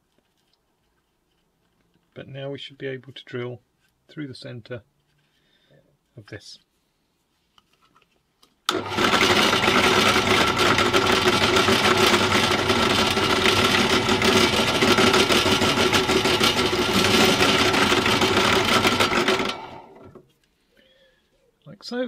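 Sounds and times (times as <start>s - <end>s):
drill bit drilling through wood: 8.7s - 20.2s
drill press motor whine: 8.7s - 20.2s.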